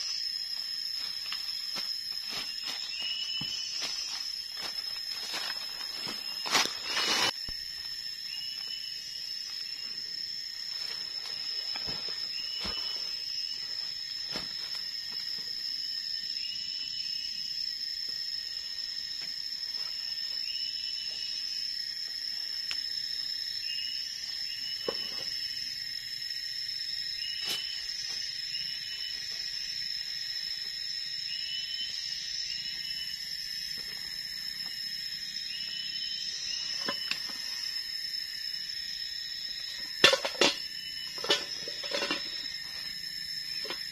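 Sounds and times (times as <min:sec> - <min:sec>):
high-pitched insect drone: 0:00.0 - 0:43.9
short insect chirping call: 0:00.0 - 0:43.9
snaps and rustles in leaf litter: 0:03.8 - 0:07.6.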